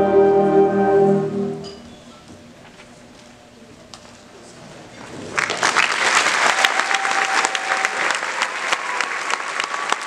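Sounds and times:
concert band music: 0.0s - 2.1s
audience applause: 5.2s - 10.0s.

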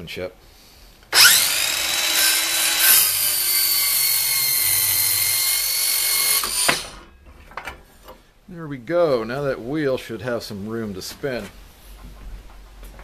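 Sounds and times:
circular saw blade whining: 1.1s - 7.1s
saw cutting through wood: 1.1s - 7.1s.

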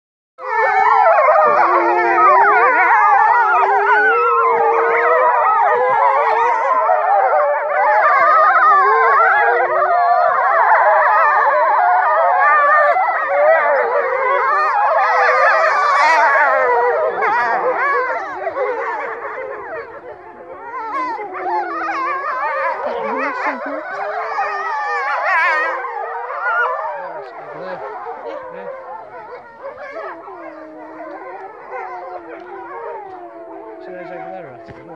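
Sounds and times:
wolves howling in chorus: 0.4s - 34.9s
wolf yips and whimpers: 7.4s - 34.9s.

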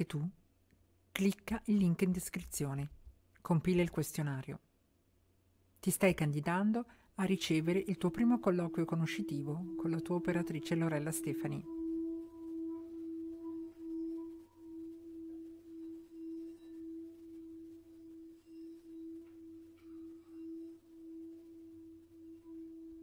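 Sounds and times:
singing bowl ringing: 7.2s - 23.0s.

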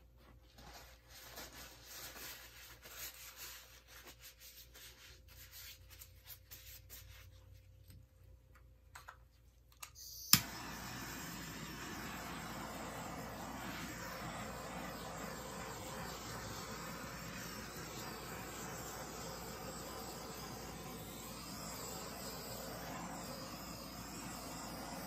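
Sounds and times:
faint rubbing and handling noises: 0.0s - 8.4s
torch lighting click: 9.8s - 25.0s
torch flame hissing: 10.3s - 25.0s.

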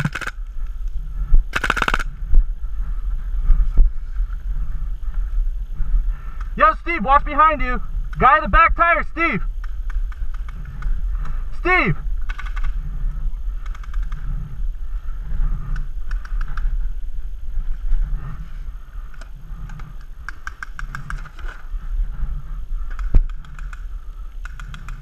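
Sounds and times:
steady low rumble: 0.0s - 25.0s
paintball markers popping: 22.9s - 25.0s.

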